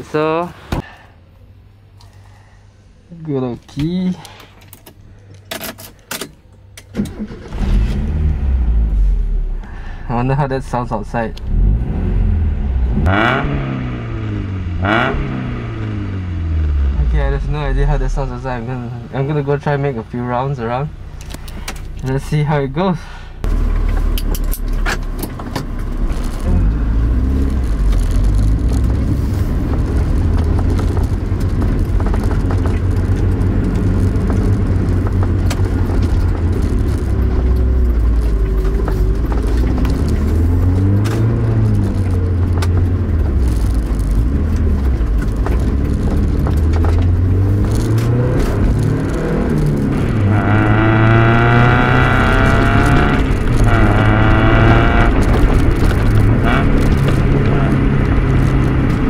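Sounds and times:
gear shift: 3.6 - 8.3, 21.0 - 22.3, 23.4 - 59.0
car engine from inside cabin: 23.4 - 59.0.

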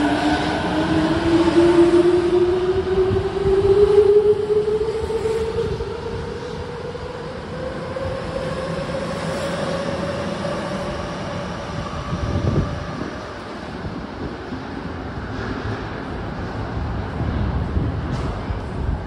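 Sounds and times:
train wheels rumbling on rail: 0.0 - 19.0.

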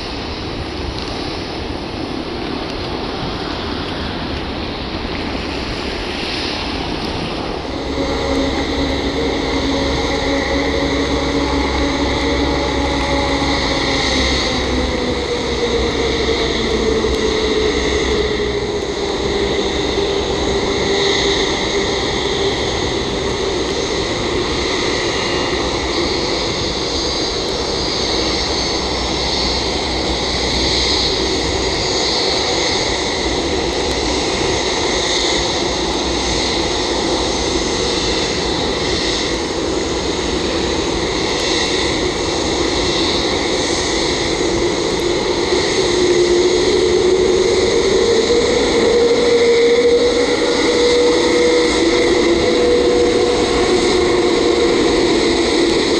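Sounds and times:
jet engines whining: 0.0 - 55.9
jet rush: 0.0 - 55.9.

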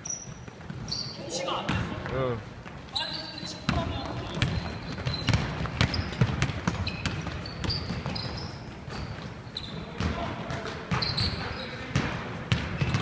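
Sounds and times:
sneakers squeaking on floor: 0.0 - 13.0
basketball bouncing on wooden floor: 3.6 - 9.3, 9.9 - 13.0.

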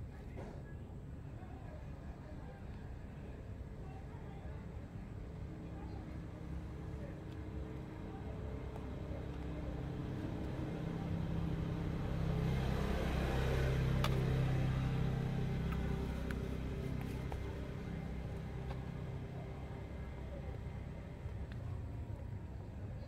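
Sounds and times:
passing vehicle engine rumble: 5.3 - 23.0.

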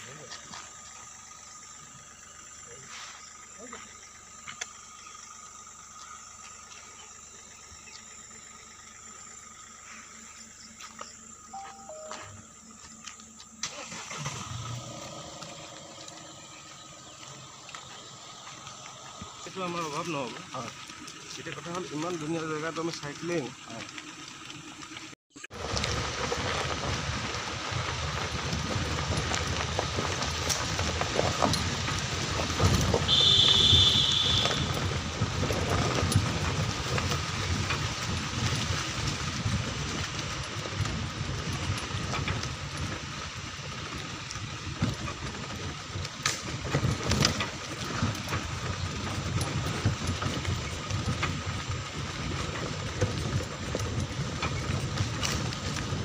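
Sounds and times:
vehicle rumbling on dirt track: 0.0 - 56.0
brief high tone: 11.5 - 12.6.

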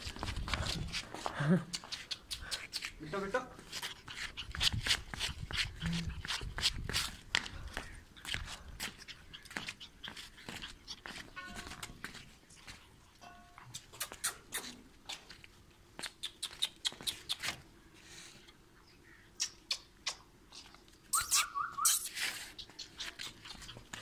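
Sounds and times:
puppy yipping: 21.2 - 22.1.

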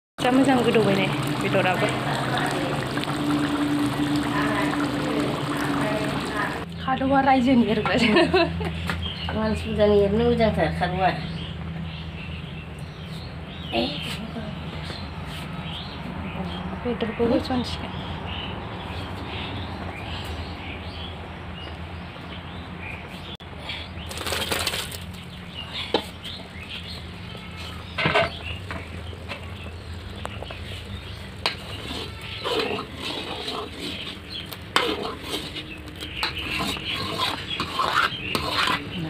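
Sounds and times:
liquid boiling in metal pan: 0.2 - 6.7, 27.9 - 39.0.

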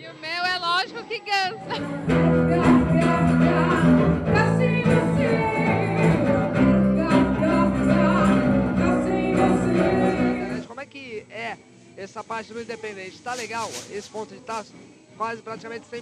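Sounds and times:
woman singing into a microphone: 0.8 - 10.7
electric bass: 1.9 - 10.6.

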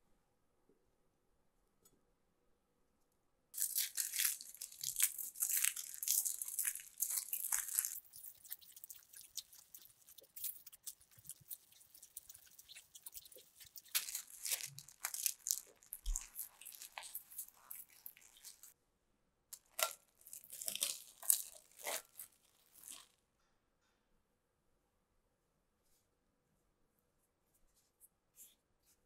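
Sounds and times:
aluminium foil crinkling: 3.6 - 18.8, 19.6 - 23.1.

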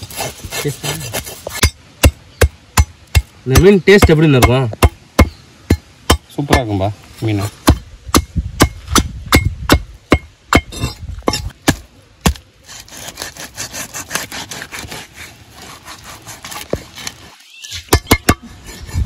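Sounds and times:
knife sawing through fish: 0.0 - 1.6, 12.6 - 17.4, 18.5 - 19.0.

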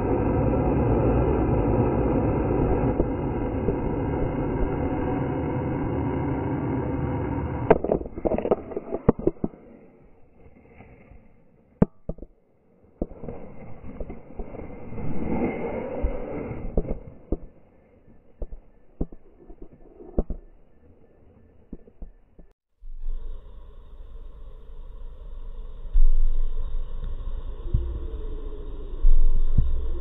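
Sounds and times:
vultures hissing deeply: 23.0 - 30.0.

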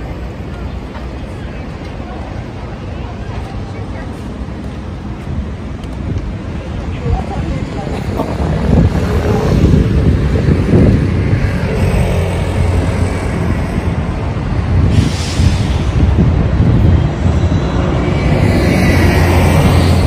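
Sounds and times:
traffic rumble: 0.0 - 20.0
wind buffeting microphone: 1.7 - 20.0.

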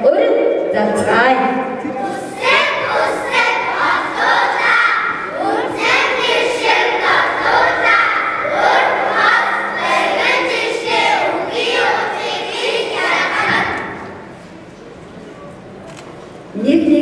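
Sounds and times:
children chanting vowels in unison: 1.9 - 14.3.

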